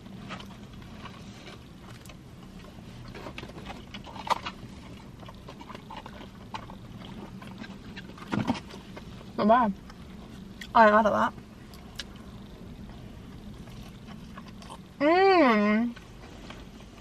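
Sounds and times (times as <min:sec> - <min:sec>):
faint steady hum: 0:00.0 - 0:17.0
people chewing with wet smacks: 0:00.2 - 0:09.0, 0:09.8 - 0:10.8, 0:11.6 - 0:14.9.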